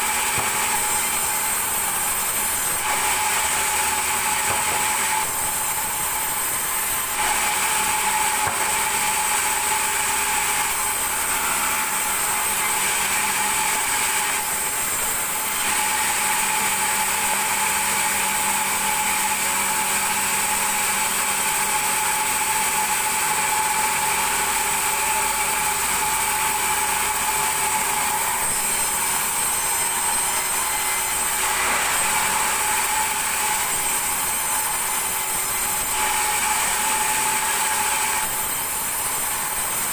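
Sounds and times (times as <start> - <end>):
saw blade rasping in wood: 0.0 - 14.5
band saw whine: 0.0 - 19.8, 20.4 - 39.9.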